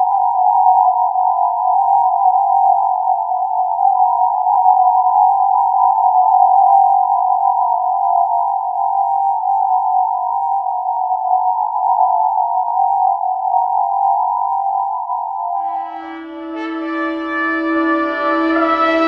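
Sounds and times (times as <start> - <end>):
electronic drone: 15.6 - 19.0.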